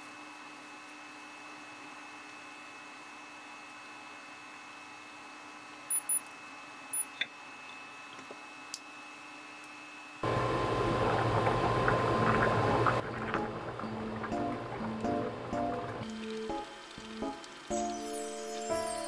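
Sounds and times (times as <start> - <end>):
induction cooktop hum: 0.0 - 19.0
water bubbling at rolling boil: 10.2 - 17.7.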